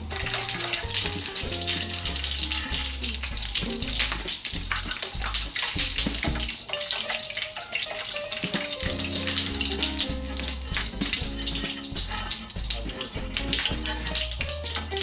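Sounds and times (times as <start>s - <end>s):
background music with bass: 0.0s - 6.6s, 8.2s - 15.0s
sizzling in frying pan: 0.0s - 15.0s.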